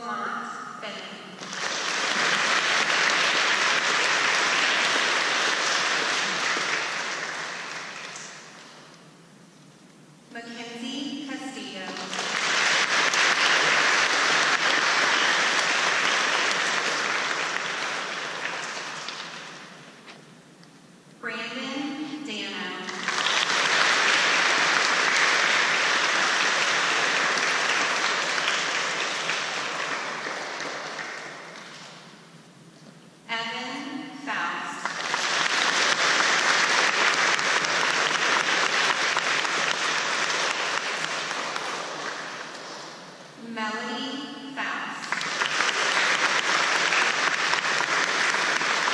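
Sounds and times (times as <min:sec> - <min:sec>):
audience applauding: 0:01.4 - 0:08.9, 0:12.0 - 0:20.1, 0:22.9 - 0:32.1, 0:34.8 - 0:43.1, 0:45.0 - 0:48.9.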